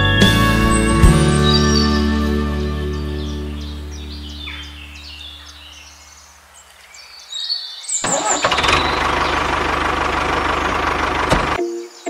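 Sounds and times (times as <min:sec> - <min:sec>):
tractor engine rattling: 0:08.0 - 0:11.6.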